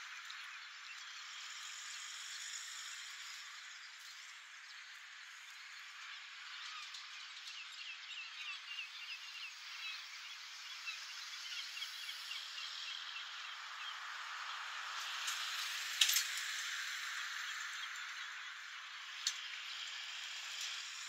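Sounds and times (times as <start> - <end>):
small birds chirping: 0.0 - 21.0
distant traffic hiss: 9.0 - 21.0.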